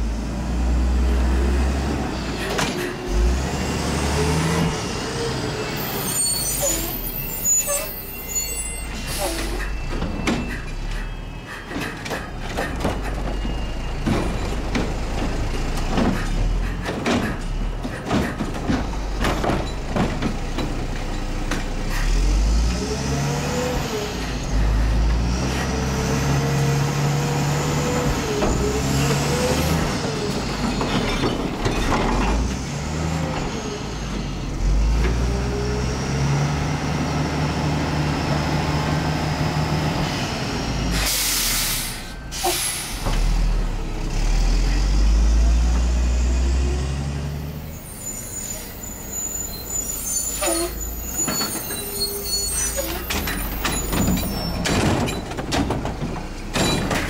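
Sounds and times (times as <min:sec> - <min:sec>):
garbage truck engine revving: 0:03.1 - 0:05.8, 0:18.6 - 0:47.9
air brake hiss: 0:40.9 - 0:43.2.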